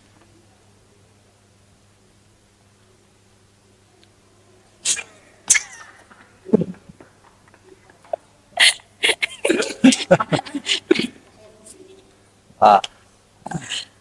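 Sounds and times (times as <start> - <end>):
man laughing: 8.0 - 11.2.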